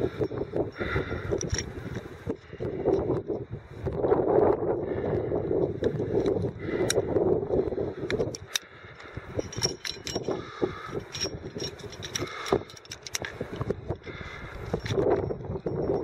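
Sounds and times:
carabiners clinking: 0.0 - 3.4, 8.1 - 16.0
wind buffeting microphone: 0.0 - 16.0.

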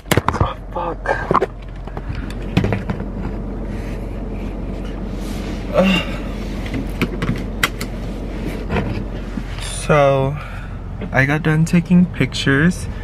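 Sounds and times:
car cabin hum and hiss: 0.0 - 13.0.

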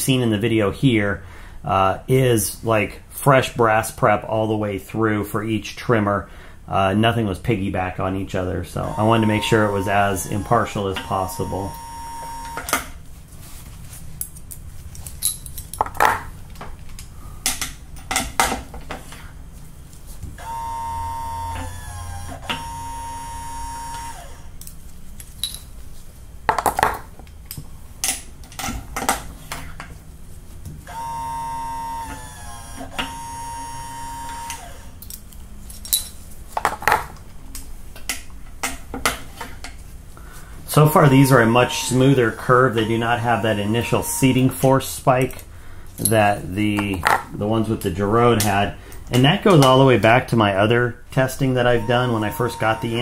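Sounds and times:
electric press motor whining: 8.8 - 12.9, 20.4 - 24.6, 30.9 - 35.0, 40.7 - 44.7, 51.4 - 53.0
metallic clicks and clinks: 14.2 - 16.0, 24.6 - 25.7, 35.0 - 36.2.

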